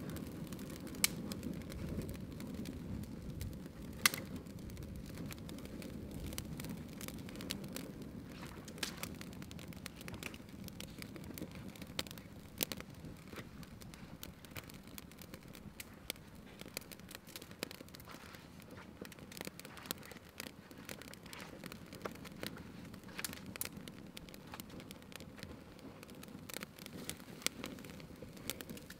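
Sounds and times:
twig fire crackling and popping: 0:00.0 - 0:28.9.

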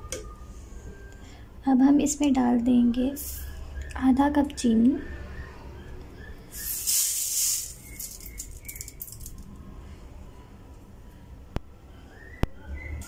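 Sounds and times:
hiss of falling sugar grains: 0:06.5 - 0:08.9
pattering grains: 0:06.5 - 0:09.4.

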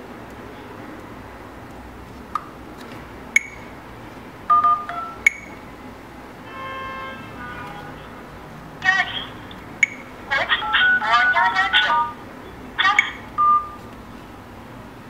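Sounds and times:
short sharp keypad beeps: 0:03.4 - 0:03.7, 0:04.5 - 0:05.6, 0:09.8 - 0:10.1, 0:12.9 - 0:13.8
two-note dial tones: 0:04.5 - 0:05.6, 0:13.0 - 0:13.8.

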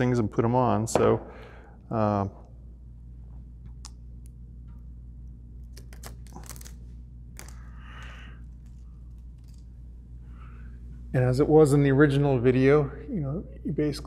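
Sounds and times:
steady low hum: 0:00.0 - 0:14.0
plastic pieces clicking and crackling: 0:07.4 - 0:09.7.

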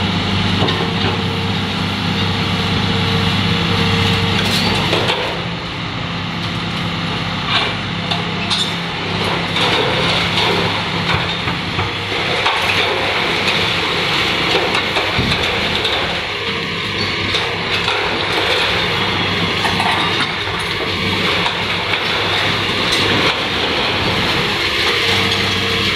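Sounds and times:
excavator diesel engine running: 0:00.0 - 0:25.9
concrete and steel breaking: 0:09.3 - 0:25.9.

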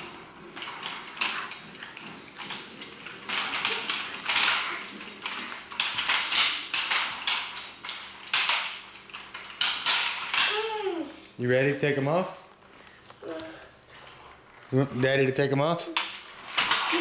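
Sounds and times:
plastic roller skates clattering: 0:00.0 - 0:17.0.

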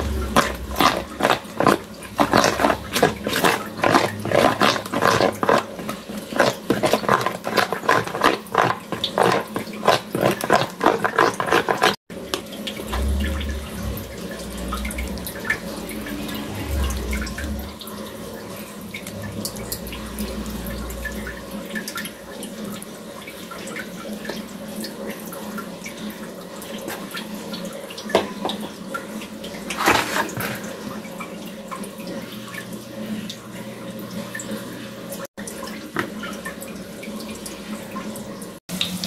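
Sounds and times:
wet food handling: 0:00.0 - 0:15.7, 0:29.6 - 0:30.8
low rumble: 0:12.8 - 0:17.8.

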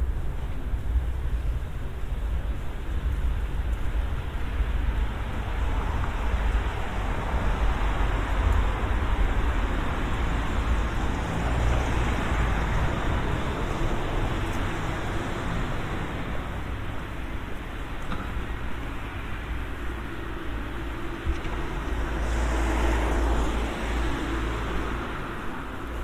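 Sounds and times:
road traffic noise: 0:00.0 - 0:26.0
vehicle passing by: 0:21.5 - 0:26.0.

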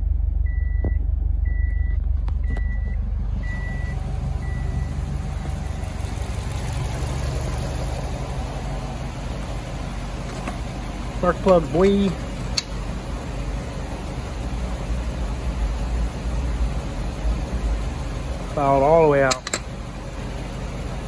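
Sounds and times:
car engine idling: 0:00.0 - 0:21.0
repeated beep: 0:00.5 - 0:05.0.

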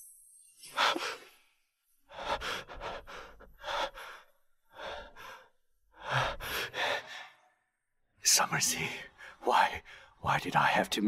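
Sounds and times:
person breathing heavily: 0:02.1 - 0:07.5.

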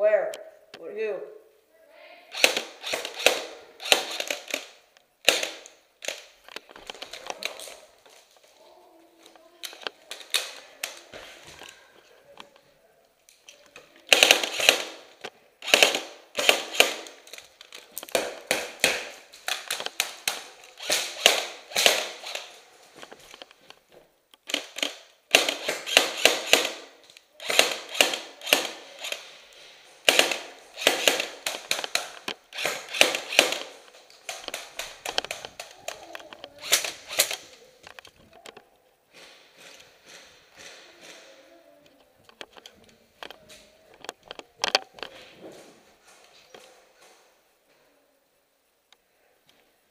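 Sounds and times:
airsoft rifle firing bursts: 0:02.3 - 0:06.2, 0:14.1 - 0:17.2, 0:20.8 - 0:22.6, 0:24.5 - 0:29.3, 0:30.0 - 0:35.6.

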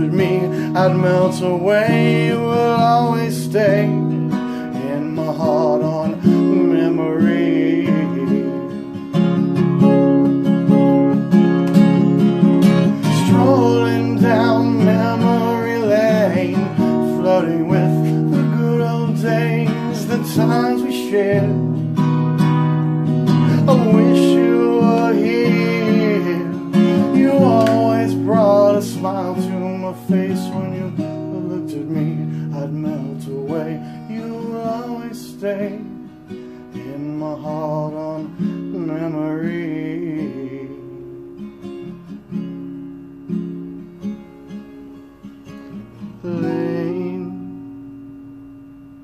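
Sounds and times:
acoustic guitar folk song: 0:00.0 - 0:49.0.

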